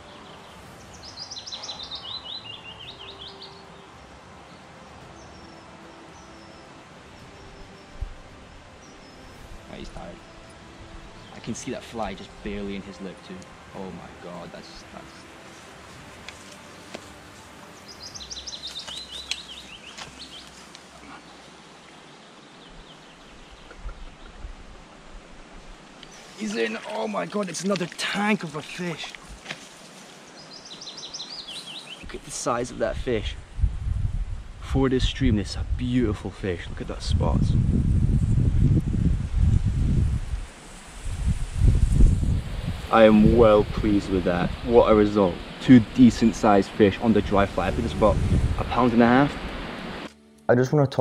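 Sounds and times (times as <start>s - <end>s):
faint high bird calls: 0.0s - 3.9s
small river rushing: 0.0s - 32.8s, 40.2s - 50.1s
songbird singing: 0.0s - 50.5s
steady outdoor hiss: 0.0s - 51.0s.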